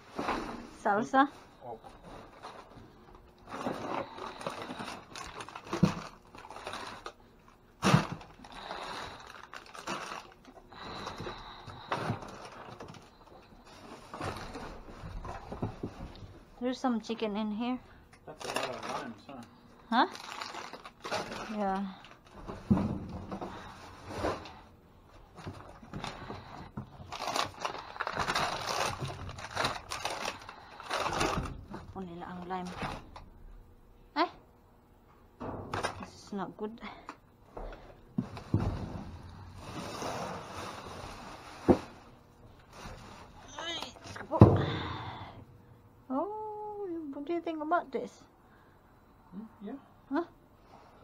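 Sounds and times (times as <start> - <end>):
bags rustling and scraping: 0.0 - 7.2, 7.8 - 16.2, 18.3 - 19.3, 20.1 - 31.7, 38.2 - 44.2.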